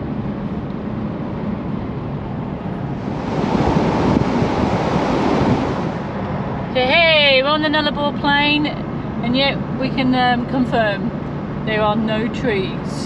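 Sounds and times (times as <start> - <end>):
road noise: 0.0 - 13.0
hissy rush of wind: 0.6 - 7.3.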